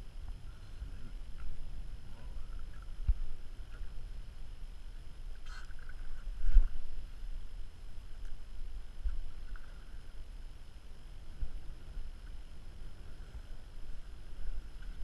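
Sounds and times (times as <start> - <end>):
low wind rumble: 0.0 - 15.0.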